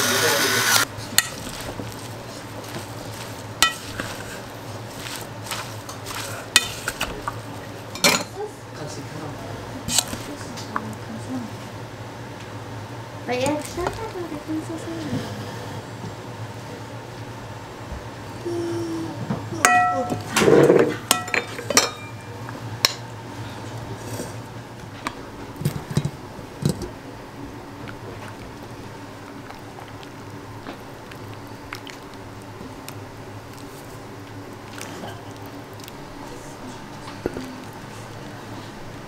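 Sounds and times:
dishes and utensils clinking: 3.6 - 4.3, 7.9 - 8.4, 19.6 - 23.0.

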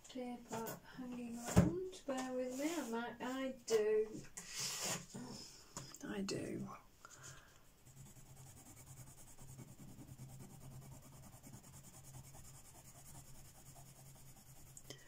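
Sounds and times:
pencil scratching on paper: 7.8 - 15.0.

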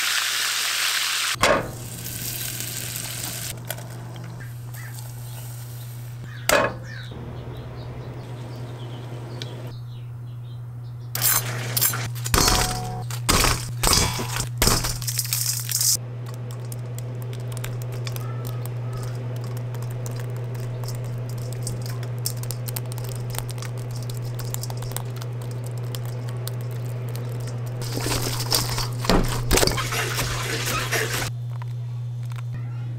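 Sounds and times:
low hum: 1.4 - 32.9
food rattling in metal bowl: 11.2 - 31.3.

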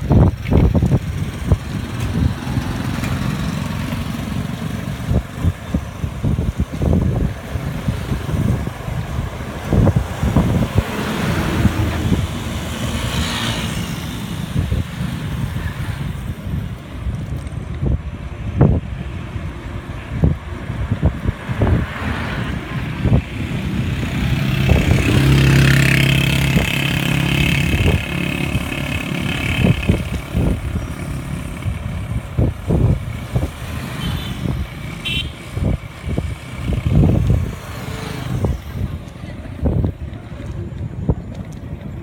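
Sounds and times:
wind buffeting microphone: 0.0 - 42.0
vehicle engine passing: 0.6 - 5.2, 6.3 - 16.2, 20.8 - 39.8.

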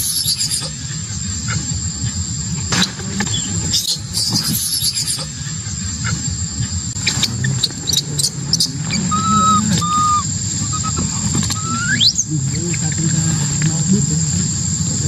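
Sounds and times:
baby monkey crying: 7.0 - 12.3.

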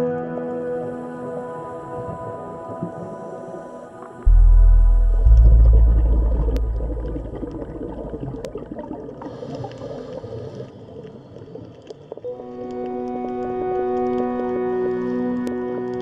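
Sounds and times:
water bubbling and gurgling: 1.8 - 16.0
faint underwater clicks: 2.7 - 16.0
deep underwater rumble: 4.2 - 11.6.

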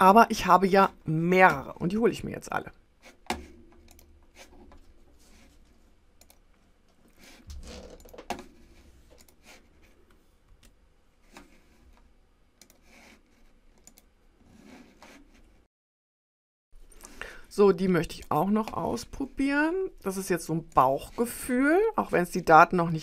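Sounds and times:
mouse and keyboard clicks: 13.8 - 14.1.

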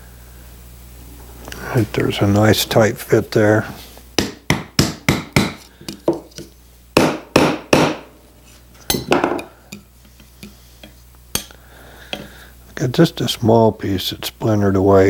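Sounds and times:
hammer knocking wooden dowel: 4.2 - 8.1.

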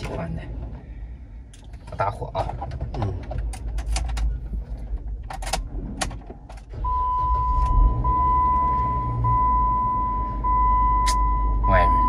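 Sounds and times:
car engine starting and rumbling: 0.0 - 12.0
car warning chime: 6.8 - 12.0.

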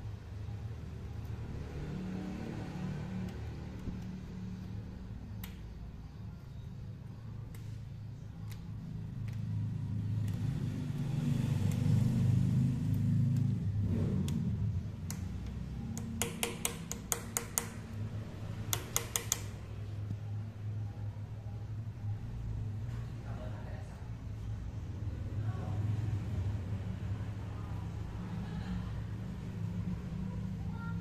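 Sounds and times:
metallic punch taps on bolt: 16.0 - 17.8, 18.7 - 19.5.

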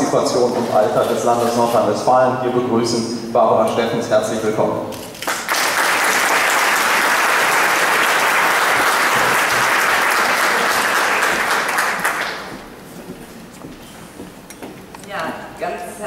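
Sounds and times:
audience applauding: 5.2 - 12.6.

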